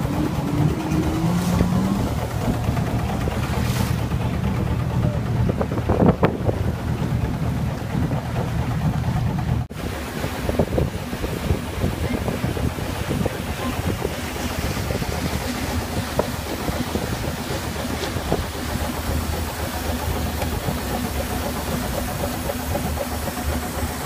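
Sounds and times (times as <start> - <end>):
low engine hum: 0.0 - 24.0
wind buffeting microphone: 0.0 - 24.0
water hiss: 12.0 - 24.0.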